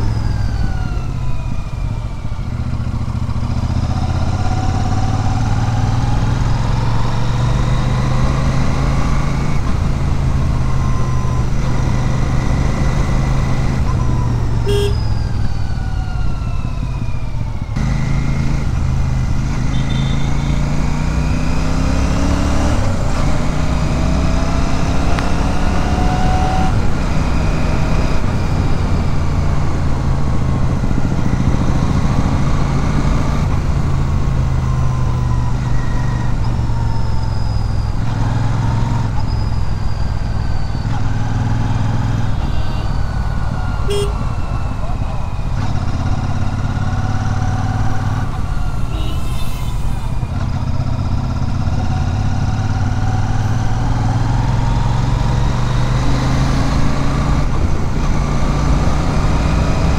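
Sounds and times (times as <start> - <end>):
motorcycle engine and exhaust: 0.0 - 59.9.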